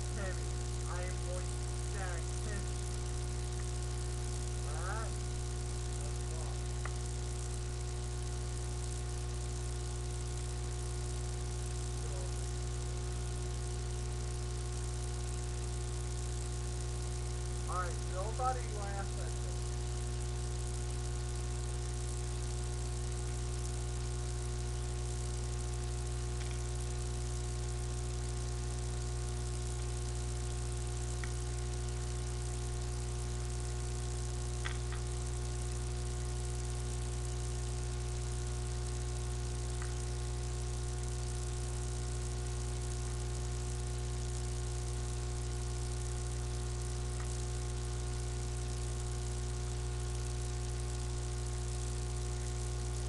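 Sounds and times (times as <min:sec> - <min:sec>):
low electrical hum with hiss: 0:00.0 - 0:53.0
faint clicks: 0:26.4 - 0:26.7.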